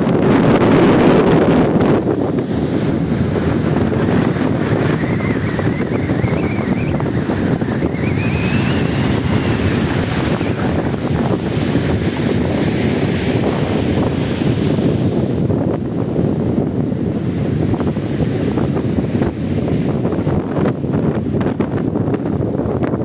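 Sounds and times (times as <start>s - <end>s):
sea waves on shore: 0.0s - 22.8s
strong wind buffeting microphone: 0.0s - 23.0s
faint wavering high whistle: 4.7s - 10.6s.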